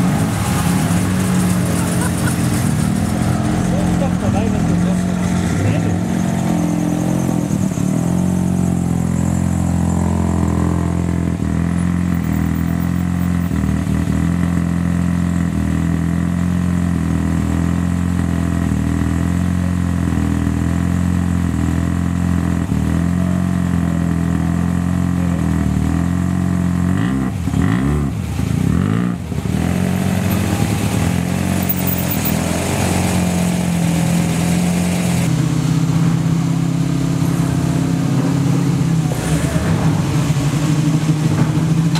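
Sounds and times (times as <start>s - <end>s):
car engines idling: 0.0s - 14.2s, 28.1s - 41.9s.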